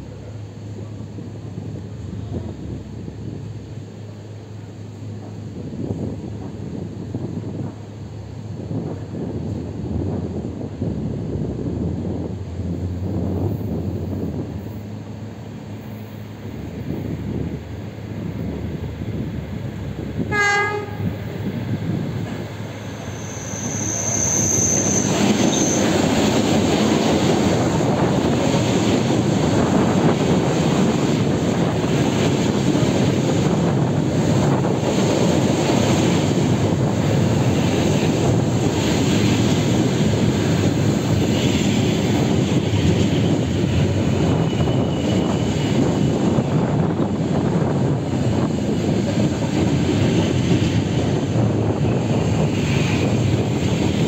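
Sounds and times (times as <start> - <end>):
train wheels rumbling: 0.0 - 54.0
train horn blast: 20.3 - 21.2
high wheel squeal: 22.8 - 26.0, 44.0 - 46.2.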